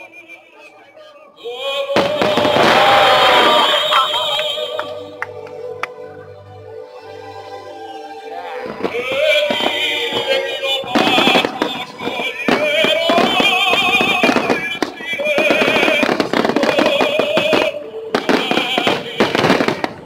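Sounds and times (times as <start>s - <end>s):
show music with held notes: 0.0s - 20.0s
fireworks popping and banging: 2.0s - 5.6s, 8.6s - 20.0s.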